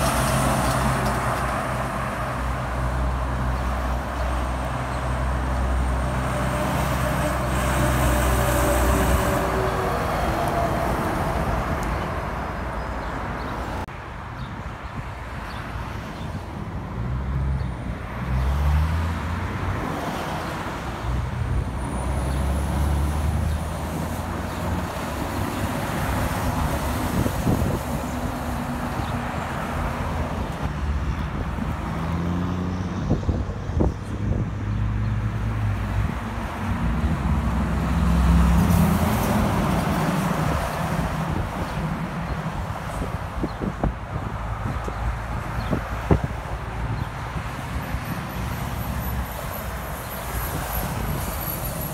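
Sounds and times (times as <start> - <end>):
vehicles passing on highway: 0.0 - 51.9.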